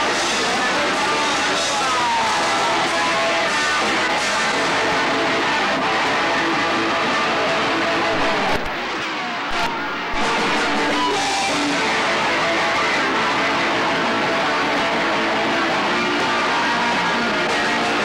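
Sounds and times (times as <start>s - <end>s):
electric guitar: 0.0s - 18.0s
punk band playing: 0.0s - 18.0s.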